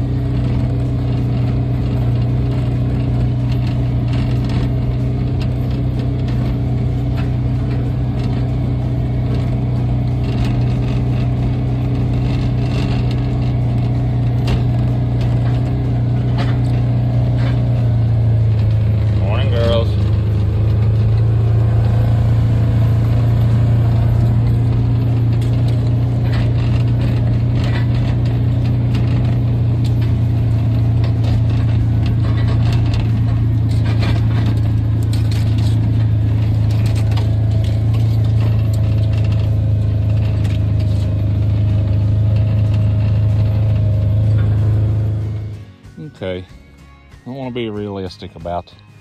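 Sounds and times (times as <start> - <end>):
small gasoline engine running: 0.0 - 48.7.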